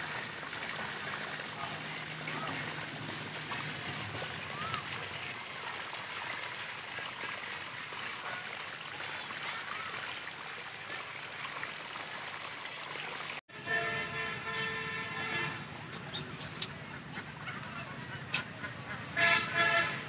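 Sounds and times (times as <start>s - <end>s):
water rushing down channel: 0.0s - 20.0s
pitched honk: 13.5s - 15.6s, 18.6s - 20.0s.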